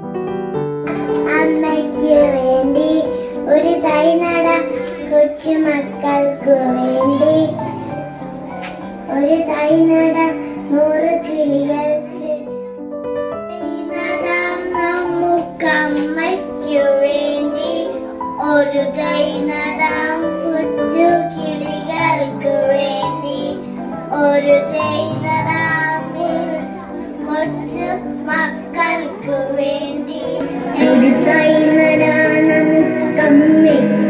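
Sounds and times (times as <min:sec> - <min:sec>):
keyboard playing low notes: 0:00.0 - 0:34.0
girls singing into a microphone: 0:27.2 - 0:34.0.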